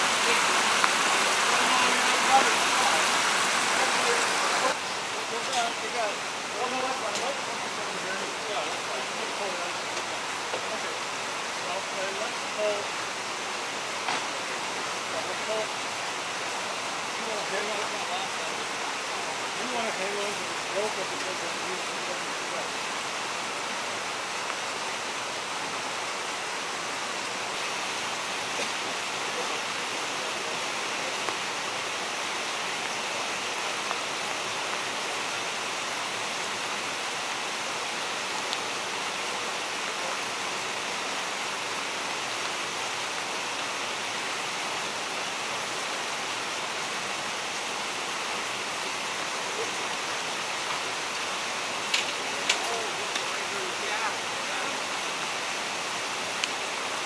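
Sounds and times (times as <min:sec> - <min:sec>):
water rushing through tanks: 0:00.0 - 0:57.0.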